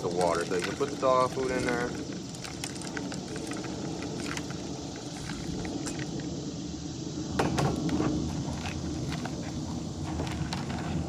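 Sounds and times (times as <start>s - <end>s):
dry kibble rattling into bucket: 0.0s - 6.2s.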